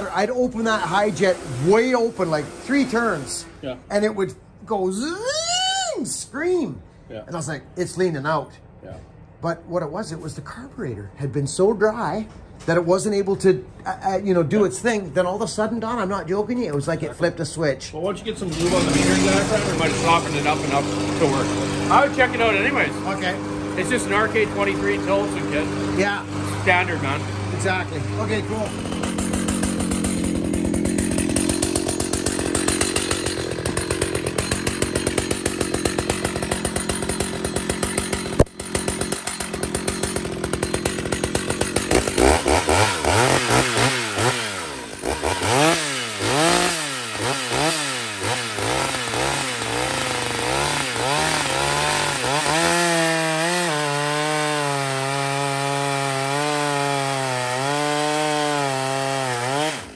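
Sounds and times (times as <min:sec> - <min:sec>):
chainsaw cutting log: 0:00.0 - 0:04.2, 0:18.2 - 0:59.9.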